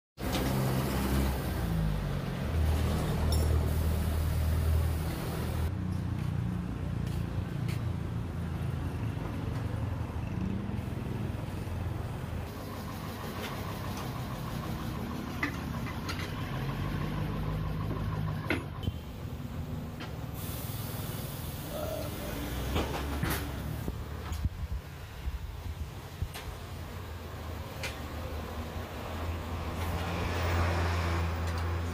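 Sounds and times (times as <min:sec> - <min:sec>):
vehicle engines and traffic hum: 0:00.2 - 0:31.9.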